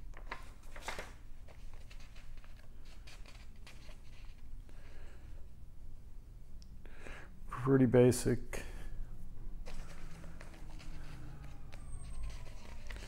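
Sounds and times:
paper pages rustling: 0.0 - 4.4, 9.6 - 13.0
low steady hum: 0.0 - 13.0.

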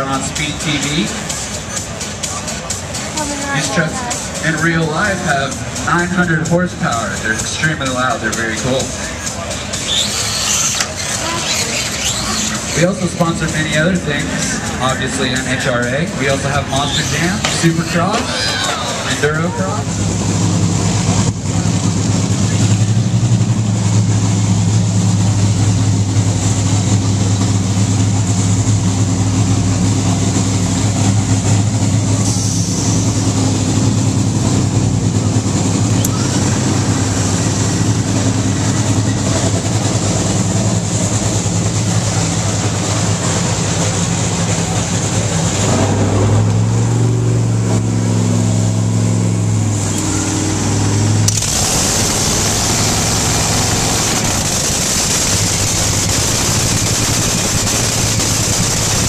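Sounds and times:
dragster engine idling: 0.0 - 59.0
harsh hissing rush: 9.0 - 14.8, 51.3 - 59.0.

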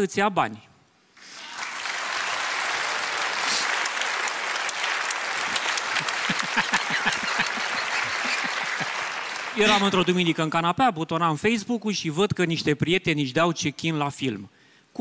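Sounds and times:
audience applauding: 1.2 - 10.6.

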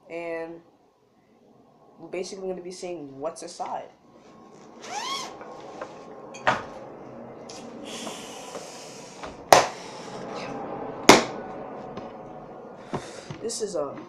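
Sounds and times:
bag rustling and scraping: 4.2 - 6.1.

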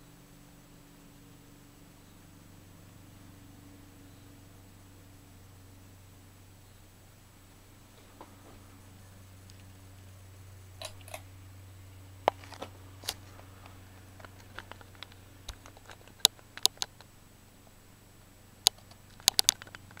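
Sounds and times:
ceiling fan motor humming: 0.0 - 20.0
sharp clicks and ticks: 12.3 - 17.8, 18.6 - 20.0.

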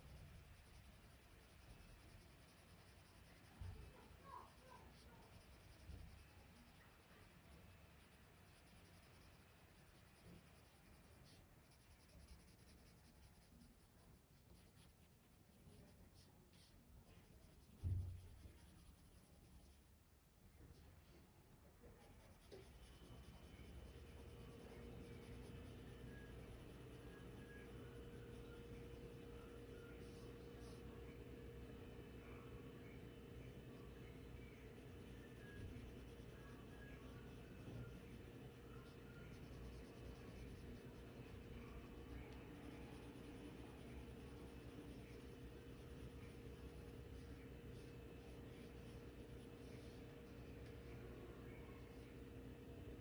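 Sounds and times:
pencil scratching on paper: 0.0 - 19.9, 22.0 - 30.8, 34.2 - 50.8
soft low thump: 17.8 - 18.4.

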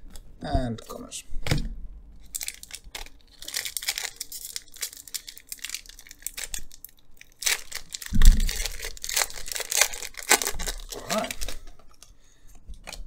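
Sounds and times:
foil wrapper crinkling and tearing: 2.2 - 12.0.

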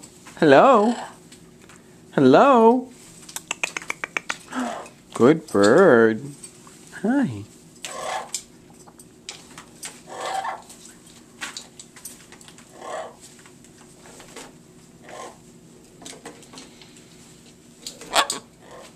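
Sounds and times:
macaw calling: 7.9 - 8.3, 10.1 - 10.6.

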